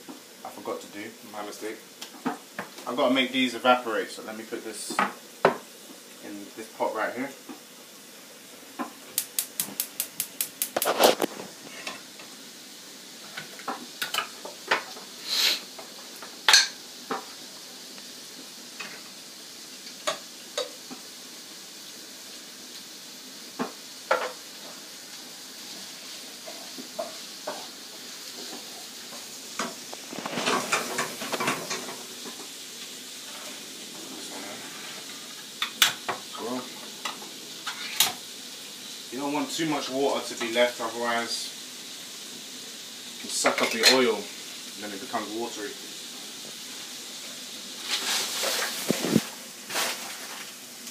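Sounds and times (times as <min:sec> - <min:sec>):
onions sizzling in a pan: 0:00.0 - 0:50.9
clatter of pots and utensils: 0:13.3 - 0:15.0, 0:16.4 - 0:17.3, 0:29.6 - 0:32.5, 0:37.0 - 0:38.2, 0:43.4 - 0:44.1.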